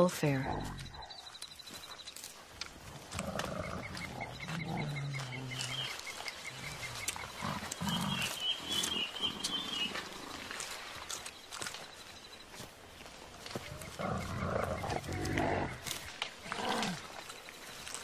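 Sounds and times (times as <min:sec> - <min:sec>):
gorillas grunting and rumbling: 0:02.8 - 0:11.0, 0:13.4 - 0:17.3.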